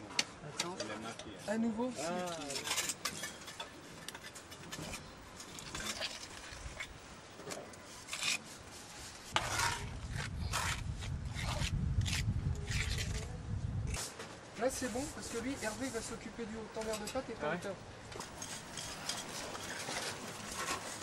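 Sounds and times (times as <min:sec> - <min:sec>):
trowel scraping mortar on stone: 0:01.5 - 0:06.9, 0:07.5 - 0:13.3, 0:18.2 - 0:21.0.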